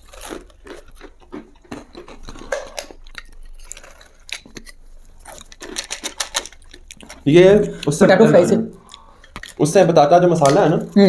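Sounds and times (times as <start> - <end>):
crunchy chewing: 0.0 - 7.9.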